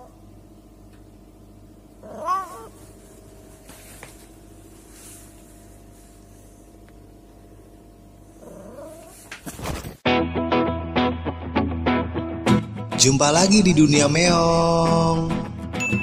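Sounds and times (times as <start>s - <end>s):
steady low hum: 0.0s - 10.0s
cat meowing: 2.0s - 2.8s.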